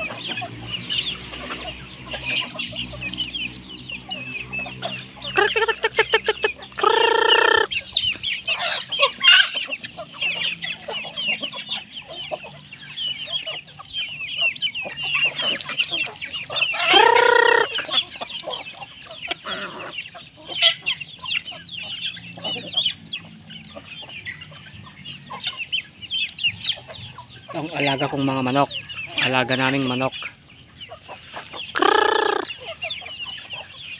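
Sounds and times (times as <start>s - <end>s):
chickens clucking: 0.0s - 33.9s
chicks peeping: 0.0s - 33.9s
loud drawn-out chicken calls: 0.0s - 33.9s.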